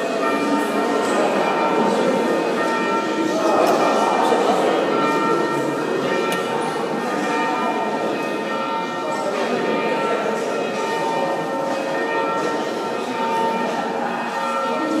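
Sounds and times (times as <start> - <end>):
church bells ringing: 0.0 - 15.0.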